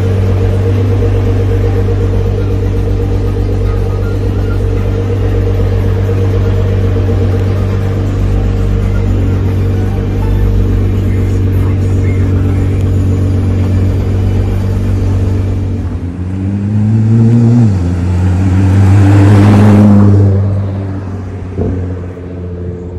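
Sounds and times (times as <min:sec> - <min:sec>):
car engine idling and revving: 0:00.0 - 0:22.9.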